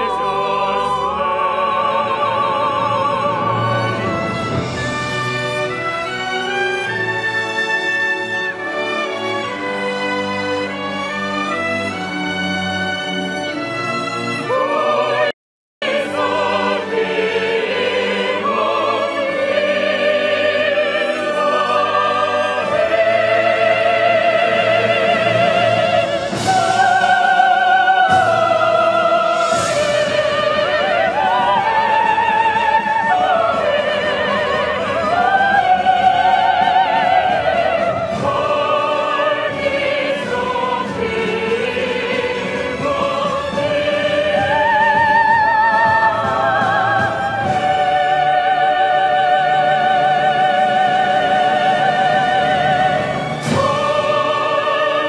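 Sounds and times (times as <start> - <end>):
voices singing together: 0.0 - 13.0, 14.3 - 55.0
instrumental accompaniment: 0.0 - 55.0.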